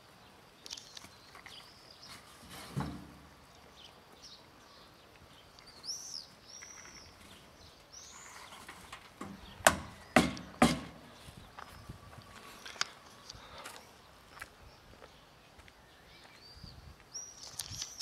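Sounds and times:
bird chirps: 3.5s - 12.9s, 15.8s - 18.0s
footsteps on gritty pavement: 5.0s - 18.0s.

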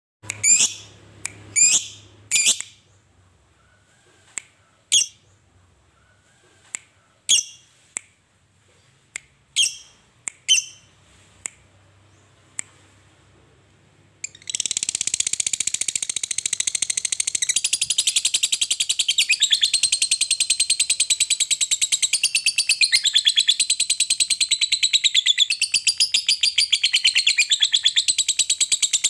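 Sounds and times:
bird shrill chirps: 0.4s - 1.0s, 1.6s - 2.8s, 7.3s - 7.7s, 14.2s - 29.0s
sharp ticks: 14.2s - 22.5s.

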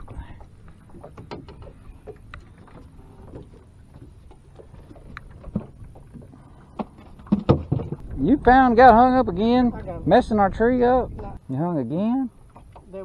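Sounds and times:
knocks and clicks on boat: 0.0s - 8.2s, 12.4s - 13.0s
wind rumble: 0.0s - 11.5s
water lapping around boat: 0.0s - 13.0s.

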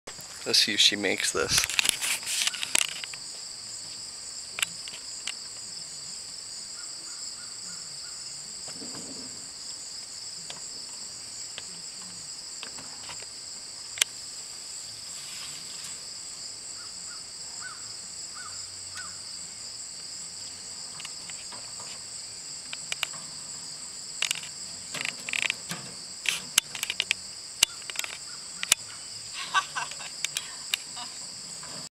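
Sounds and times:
insects chorus: 0.2s - 31.9s
sharp clicks and knocks: 22.6s - 28.9s.

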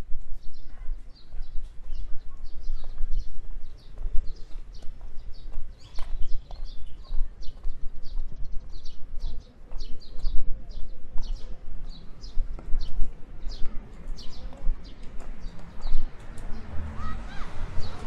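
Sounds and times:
footsteps on paved path: 0.0s - 18.0s.

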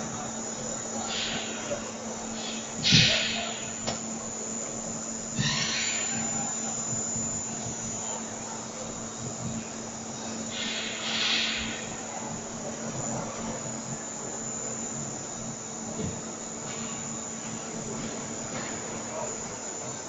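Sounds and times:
machine hiss: 0.0s - 4.4s, 5.3s - 7.9s, 10.2s - 12.4s
high-pitched machine whine: 0.0s - 20.0s.

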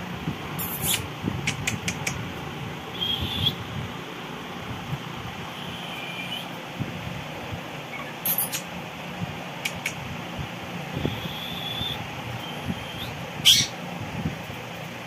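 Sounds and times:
fan-like hiss: 0.0s - 15.0s
parakeet high calls: 3.0s - 3.6s, 5.5s - 6.6s, 7.9s - 8.7s, 11.0s - 13.8s.

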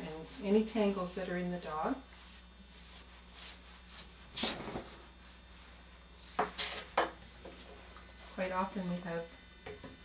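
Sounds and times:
brush scratching through fur: 2.1s - 6.4s.

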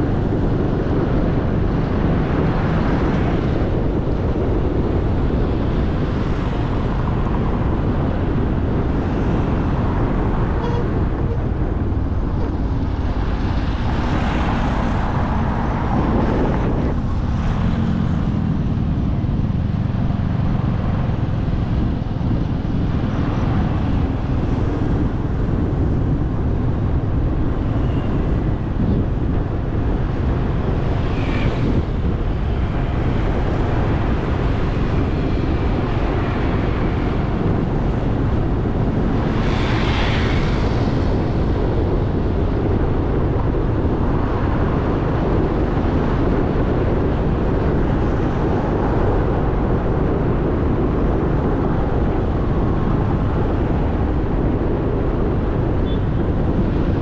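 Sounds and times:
passing traffic: 0.0s - 57.0s
road noise: 0.0s - 57.0s
wind rush on microphone: 0.0s - 57.0s.

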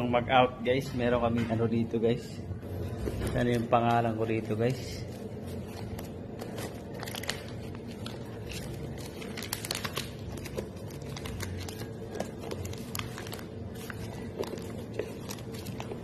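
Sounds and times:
low background hum: 0.0s - 16.0s
plastic sheets crinkling: 3.4s - 16.0s.

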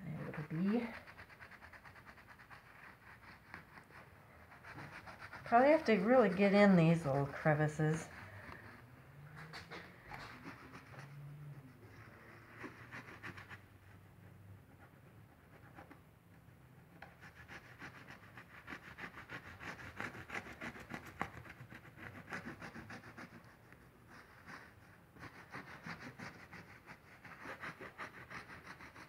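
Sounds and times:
rag scrubbing over glass: 0.0s - 8.4s.

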